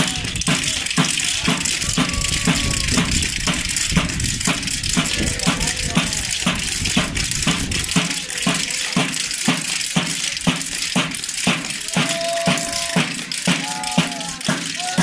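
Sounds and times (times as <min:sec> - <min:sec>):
drum beaten with rattling crackle: 0:00.0 - 0:15.0
held high note: 0:11.8 - 0:15.0.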